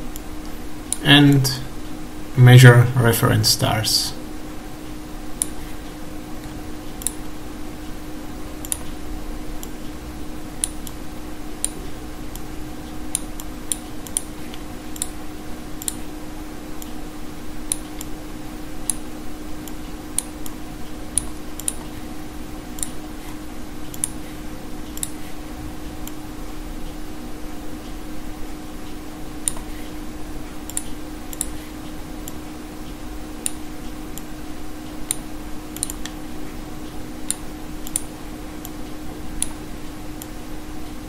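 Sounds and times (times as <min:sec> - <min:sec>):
low electrical fan hum: 0:00.0 - 0:41.0
computer mouse clicking: 0:08.6 - 0:09.0, 0:13.1 - 0:15.2, 0:15.8 - 0:16.0, 0:21.2 - 0:21.9, 0:22.8 - 0:23.0, 0:23.9 - 0:24.2, 0:24.8 - 0:25.3, 0:29.4 - 0:29.9, 0:30.6 - 0:31.6, 0:35.8 - 0:36.2, 0:37.3 - 0:38.8.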